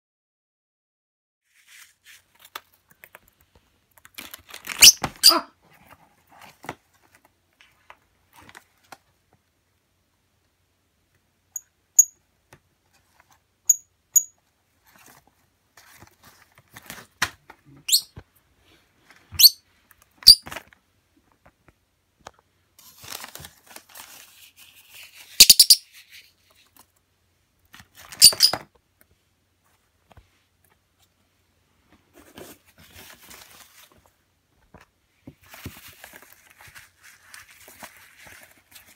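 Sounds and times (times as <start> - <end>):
paper rustling: 1.5 - 9.1, 14.8 - 17.8, 22.8 - 25.4, 32.1 - 38.9
bird chirping and squeaking: 4.7 - 5.5, 17.8 - 18.1, 19.4 - 19.6, 20.2 - 20.5, 25.4 - 25.9, 28.2 - 28.6.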